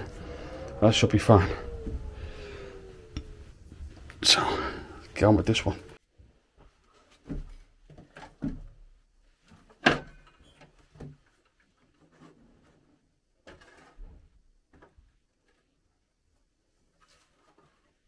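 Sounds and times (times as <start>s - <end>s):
wooden plank and tools clunking: 7.0s - 12.8s.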